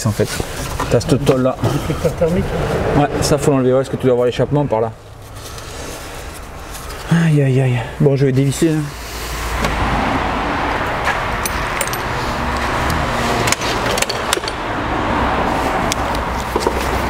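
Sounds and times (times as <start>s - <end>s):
impact wrench hammering on bolt: 11.4s - 12.1s.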